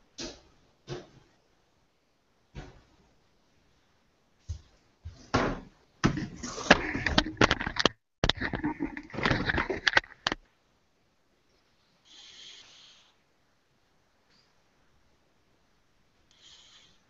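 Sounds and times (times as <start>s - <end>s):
rustling and knocking on microphone: 4.4s - 10.4s.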